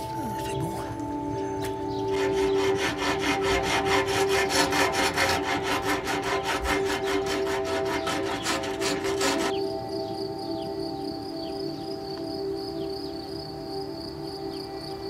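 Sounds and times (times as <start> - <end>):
held musical chord: 0.0 - 15.0
rasp filing wood: 2.1 - 9.6.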